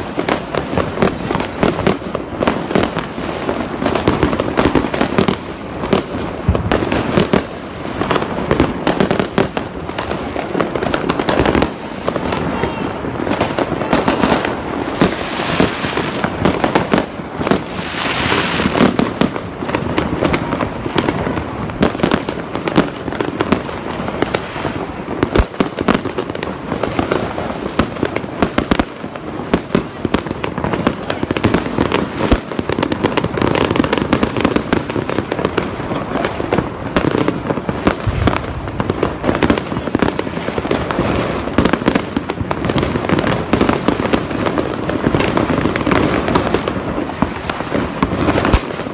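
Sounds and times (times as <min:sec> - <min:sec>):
fireworks banging: 0:00.0 - 0:48.9.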